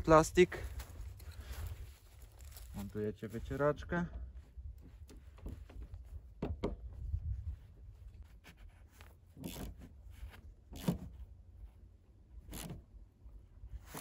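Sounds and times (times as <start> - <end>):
low steady rumble: 0.0 - 14.0
wiper arm clicks and scraping: 8.3 - 11.2.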